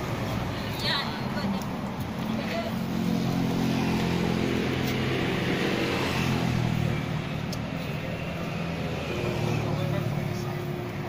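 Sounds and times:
street noise: 0:00.0 - 0:11.0
vehicle engine humming: 0:00.0 - 0:11.0.

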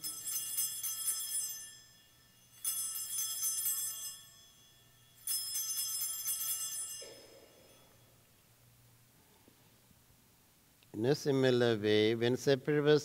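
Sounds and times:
small bells jangling: 0:00.0 - 0:08.3.

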